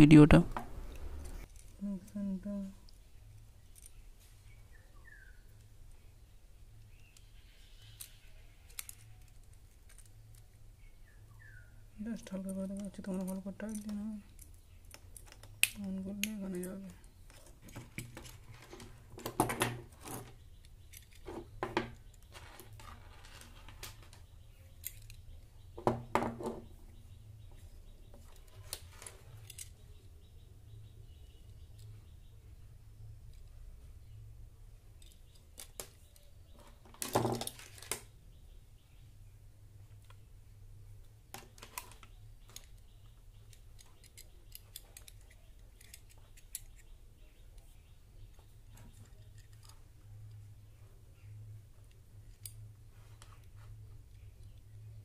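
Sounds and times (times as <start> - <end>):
small plastic parts clicking and rattling: 0.9 - 2.2, 2.8 - 4.0, 6.7 - 10.8, 12.2 - 26.7, 28.0 - 30.0, 33.2 - 33.6, 34.8 - 38.1, 41.0 - 50.5.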